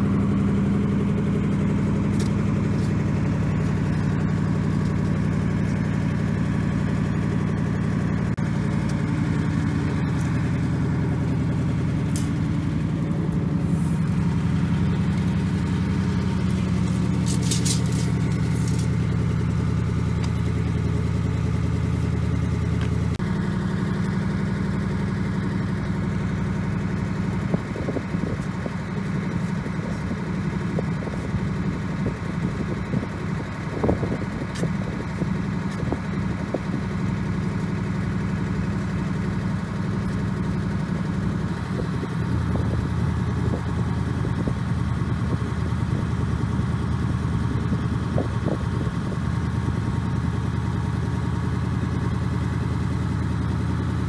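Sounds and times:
truck engine idling: 0:00.0 - 0:54.0.

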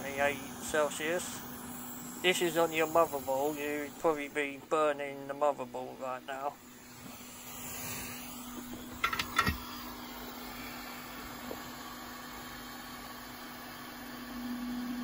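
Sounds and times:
hot air blower rushing: 0:00.0 - 0:04.6, 0:06.4 - 0:15.0
steady low hum: 0:00.0 - 0:15.0.

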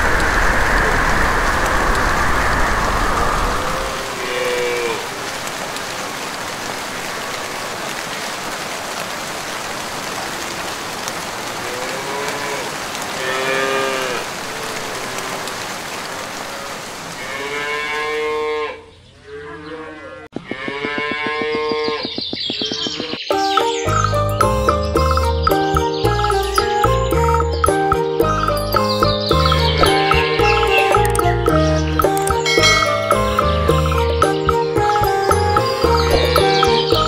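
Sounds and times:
rain hissing: 0:00.0 - 0:18.1, 0:21.0 - 0:37.0
cows mooing: 0:11.6 - 0:15.6, 0:16.5 - 0:23.2, 0:29.8 - 0:31.1, 0:35.6 - 0:37.0.

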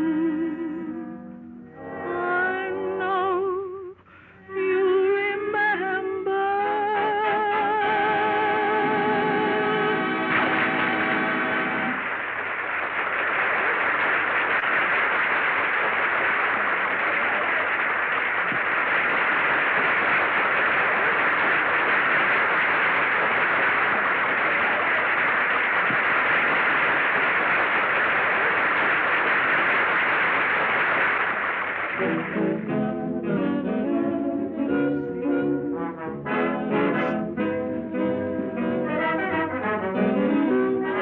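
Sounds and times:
audience applause: 0:08.0 - 0:33.2
brass band playing: 0:35.1 - 0:41.0.

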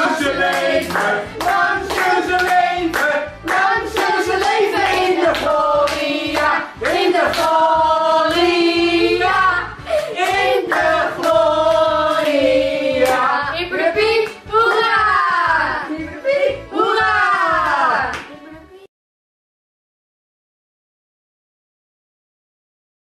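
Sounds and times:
hand clapping: 0:00.0 - 0:07.6, 0:10.0 - 0:12.4, 0:13.0 - 0:13.3, 0:17.2 - 0:18.4
voices singing over music: 0:00.0 - 0:18.3.

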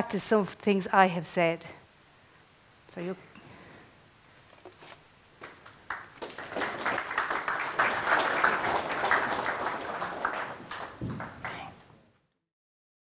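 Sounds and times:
audience applause: 0:05.4 - 0:11.8
low thump: 0:11.0 - 0:11.4.

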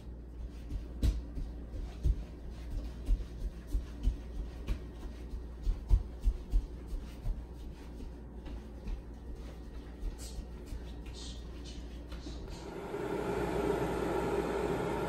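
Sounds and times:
kettle low rumble: 0:12.4 - 0:15.0.

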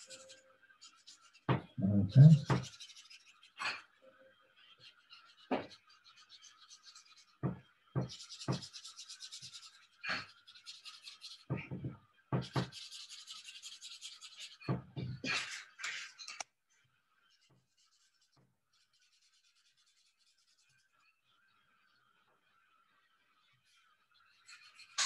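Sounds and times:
pen scribbling on paper plate: 0:00.0 - 0:03.4, 0:12.4 - 0:14.8.

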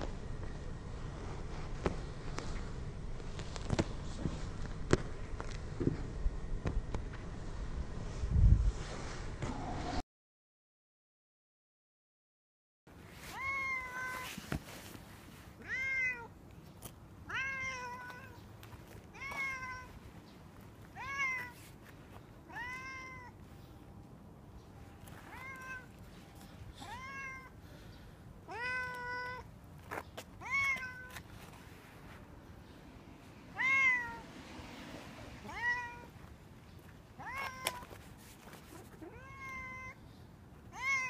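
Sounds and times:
cat meowing: 0:13.3 - 0:14.4, 0:15.6 - 0:16.3, 0:17.2 - 0:18.4, 0:19.1 - 0:20.0, 0:21.0 - 0:21.6, 0:22.5 - 0:23.4, 0:25.3 - 0:25.9, 0:26.8 - 0:27.6, 0:28.5 - 0:29.5, 0:30.4 - 0:31.2, 0:33.5 - 0:34.2, 0:35.4 - 0:36.2, 0:37.2 - 0:37.9, 0:38.9 - 0:40.0, 0:40.7 - 0:41.0.

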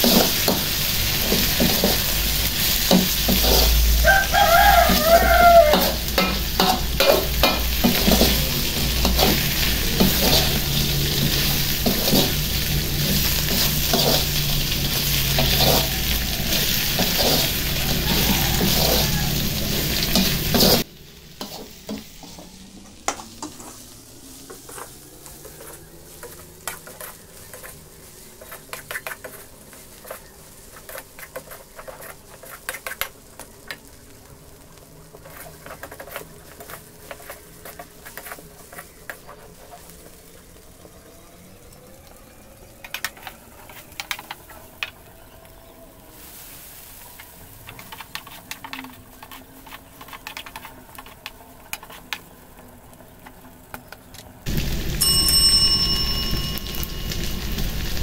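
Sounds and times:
metal spatula scraping a wok: 0:00.0 - 0:22.4, 0:24.6 - 0:33.1, 0:35.1 - 0:40.1
food sizzling in a wok: 0:00.0 - 0:53.8, 0:54.4 - 0:58.0.

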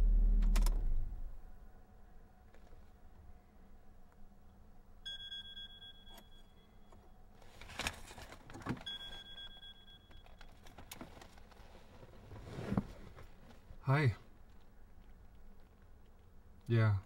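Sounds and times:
mobile phone ringing: 0:05.1 - 0:06.8, 0:08.8 - 0:10.6
phone handling clicks and rustling: 0:06.9 - 0:11.7.

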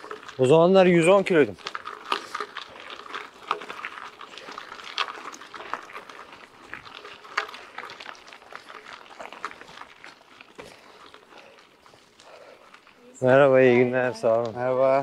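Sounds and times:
bike tyres crunching on dirt: 0:00.0 - 0:15.0.

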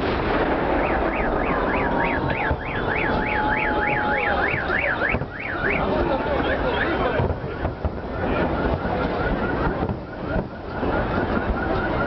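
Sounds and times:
crowd noise: 0:00.0 - 0:12.0
fireworks: 0:00.0 - 0:12.0
car alarm wailing: 0:00.6 - 0:12.0.

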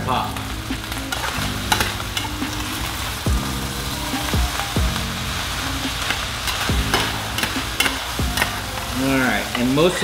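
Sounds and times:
rice sizzling in a pan: 0:00.0 - 0:10.0
metal spatula scraping a pan: 0:05.4 - 0:10.0.

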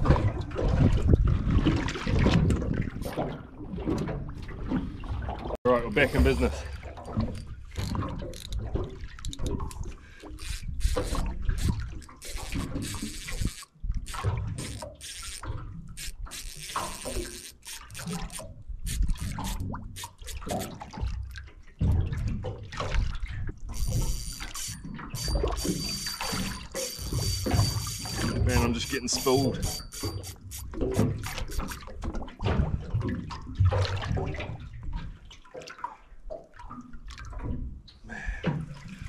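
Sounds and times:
water splashing against hull: 0:00.0 - 0:39.0
fishing reel drag whine: 0:05.8 - 0:08.6, 0:10.2 - 0:20.7, 0:23.7 - 0:31.8.

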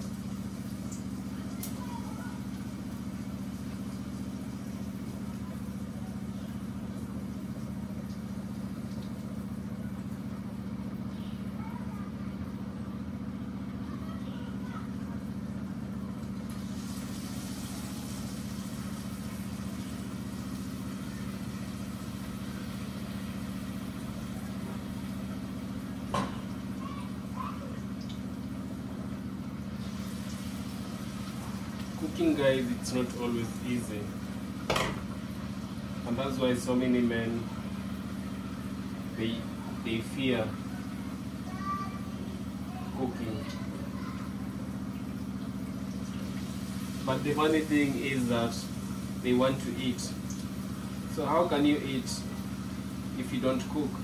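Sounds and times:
low machine hum: 0:00.0 - 0:54.0
potato slices sizzling in oil: 0:16.4 - 0:27.3, 0:27.9 - 0:37.0, 0:44.5 - 0:54.0.

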